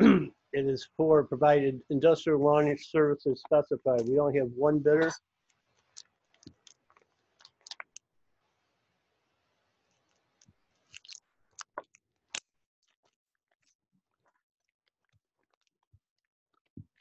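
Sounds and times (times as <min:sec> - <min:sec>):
faint room hiss: 0:00.0 - 0:05.2.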